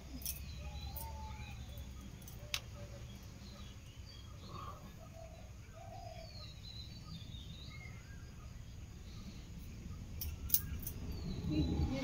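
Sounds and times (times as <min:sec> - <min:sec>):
birds chirping and calling: 0:00.0 - 0:12.0
low background rumble: 0:03.1 - 0:12.0.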